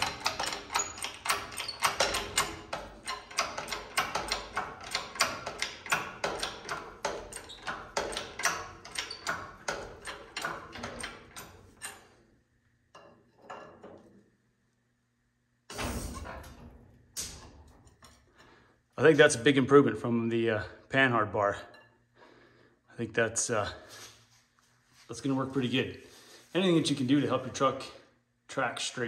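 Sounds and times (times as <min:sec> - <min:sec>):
engine hoist metallic clicks: 0:00.0 - 0:12.1.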